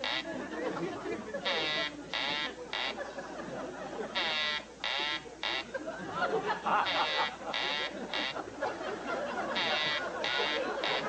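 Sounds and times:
electronic telephone ringing: 0:04.1 - 0:05.7, 0:06.8 - 0:08.4, 0:09.5 - 0:11.0.

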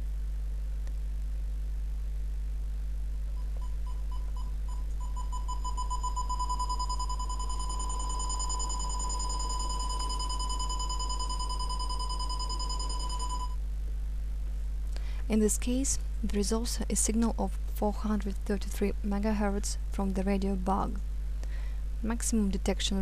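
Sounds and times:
detector beeping: 0:03.4 - 0:13.6.

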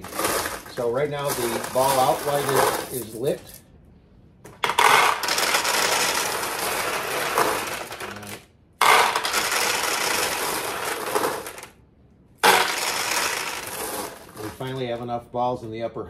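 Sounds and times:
steel balls clattering into hopper: 0:00.0 - 0:03.6, 0:04.6 - 0:11.7, 0:12.4 - 0:14.9.

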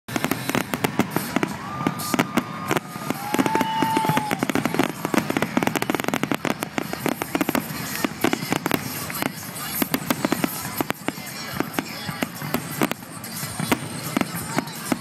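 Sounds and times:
firework shells bursting: 0:00.1 - 0:15.0
firework whistles: 0:00.1 - 0:15.0.

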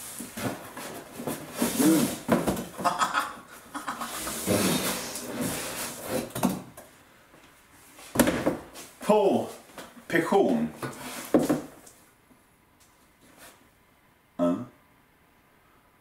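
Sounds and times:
cardboard parcel rustling: 0:00.0 - 0:02.8.

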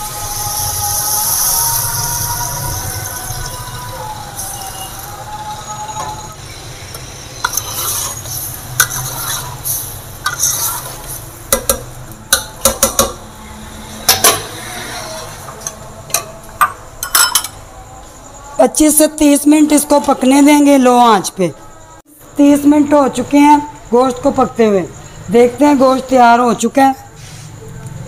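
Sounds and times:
metal spoon clinking in a pot: 0:15.6 - 0:17.6.

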